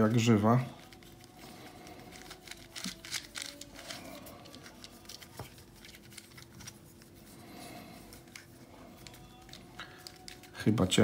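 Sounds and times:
plastic puzzle clicking and rattling: 0.8s - 6.8s.

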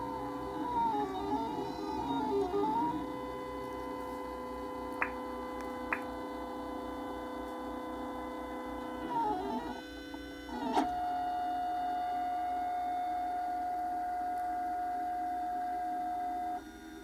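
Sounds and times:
stepper motors whining: 0.0s - 4.8s.

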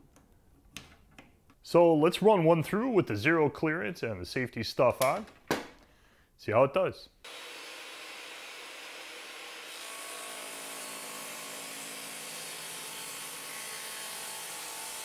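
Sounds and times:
table saw whirring: 7.3s - 15.0s.

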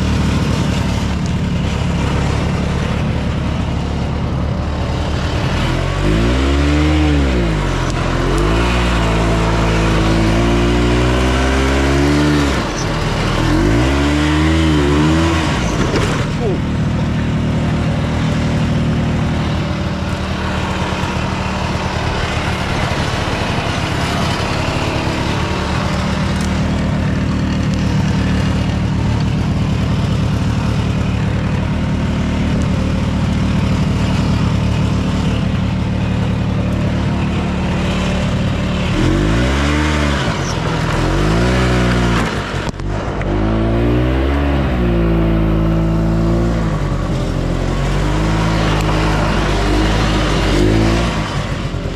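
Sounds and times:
snowmobile engine running: 0.0s - 51.9s.

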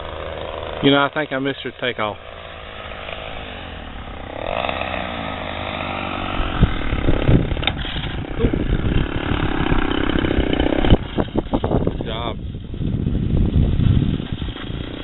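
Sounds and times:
model airplane engine running: 0.0s - 15.0s
wind buffeting microphone: 2.3s - 15.0s.

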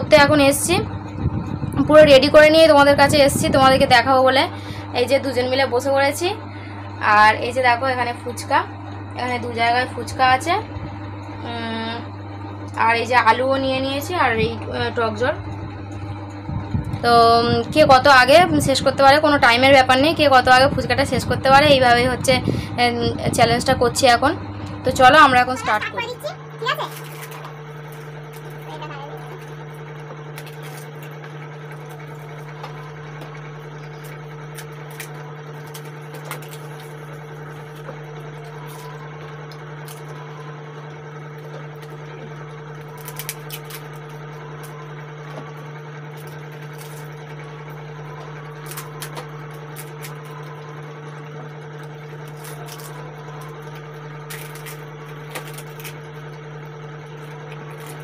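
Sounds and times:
low hum: 0.0s - 58.0s
crisp food crackling: 41.3s - 58.0s.

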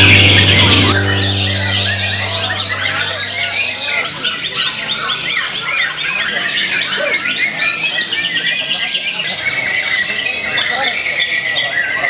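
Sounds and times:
music: 0.0s - 3.8s.

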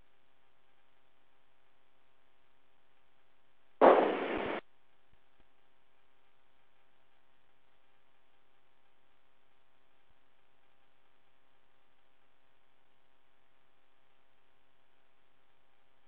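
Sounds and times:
faint steady hum: 0.0s - 16.0s
radio static burst: 3.8s - 4.6s.

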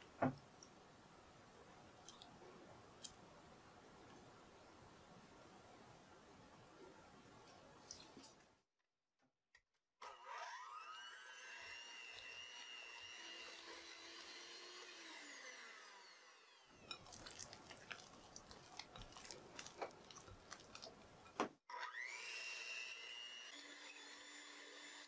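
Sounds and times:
electric hand mixer whining: 10.0s - 17.0s, 21.7s - 25.0s.

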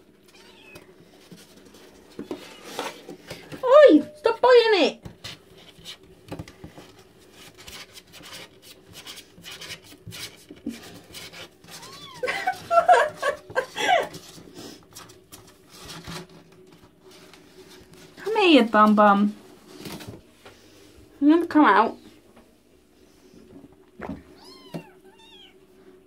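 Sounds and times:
faint steady hum: 0.0s - 26.0s
kitten mews and squeals: 0.3s - 0.9s, 24.4s - 25.6s
claws scratching on cardboard: 7.4s - 12.0s.

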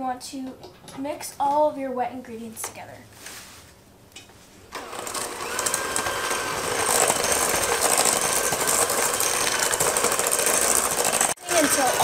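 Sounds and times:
electric hand mixer whine: 4.7s - 12.0s
beaters rattling in metal bowl: 6.1s - 12.0s.

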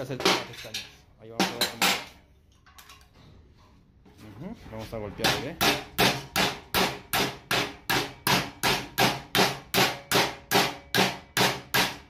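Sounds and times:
sledgehammer ringing on sheet steel: 5.2s - 12.0s.

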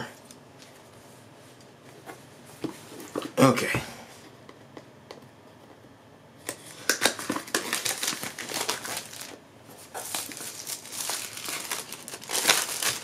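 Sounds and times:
plastic wrap crinkling: 6.5s - 13.0s.

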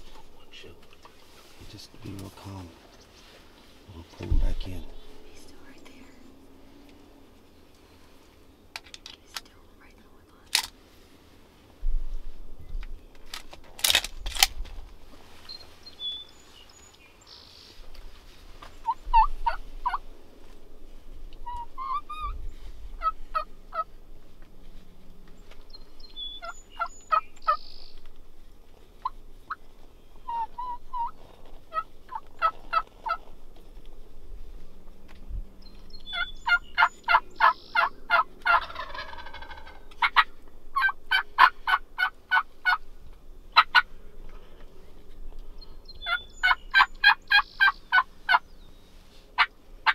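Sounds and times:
sharp clicks: 12.8s - 14.7s
wild turkey yelping and clucking: 18.6s - 20.1s, 21.3s - 24.4s, 25.5s - 34.0s, 35.7s - 44.0s, 45.9s - 49.9s
turkey gobble: 18.8s - 20.0s, 21.4s - 22.4s, 23.0s - 23.9s, 30.2s - 33.3s, 36.1s - 42.8s, 43.5s - 43.9s, 46.0s - 48.4s, 49.4s - 49.9s.

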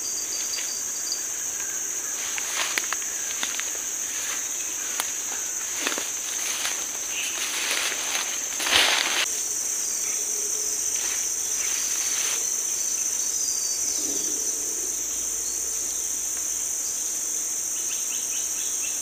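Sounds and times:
insects droning: 0.0s - 19.0s
faint rustling: 2.1s - 9.3s.

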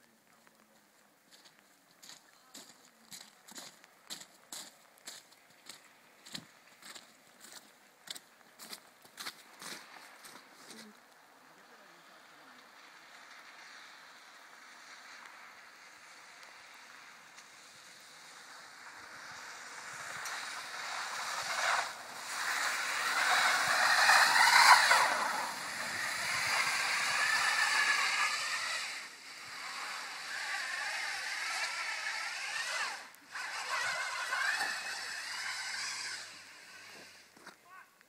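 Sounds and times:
tyre noise in slush: 17.6s - 37.4s
car engine revving: 18.1s - 37.4s.

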